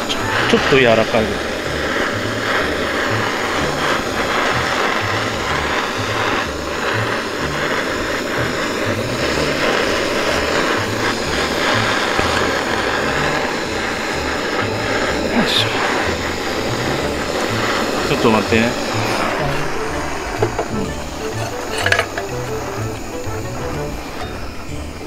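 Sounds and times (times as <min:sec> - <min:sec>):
background music with bass line: 0:00.0 - 0:25.0
gas torch hissing: 0:00.0 - 0:25.0.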